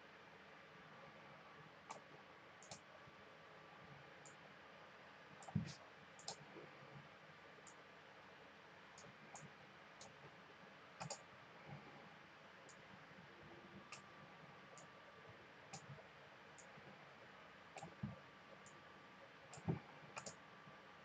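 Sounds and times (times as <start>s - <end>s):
computer mouse clicks: 1.9s - 2.8s, 5.4s - 6.4s, 9.0s - 10.2s, 11.0s - 11.3s, 13.9s - 14.1s, 15.7s - 16.0s, 17.8s - 18.8s, 19.5s - 20.4s.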